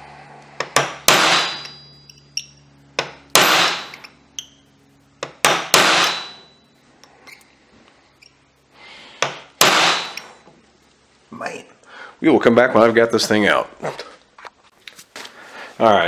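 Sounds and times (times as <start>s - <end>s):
hammer striking metal punch: 0.6s - 4.6s, 5.2s - 6.6s, 9.2s - 10.3s.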